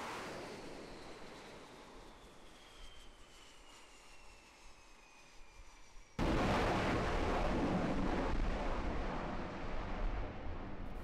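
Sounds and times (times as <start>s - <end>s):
faint jet whine: 0.0s - 8.7s.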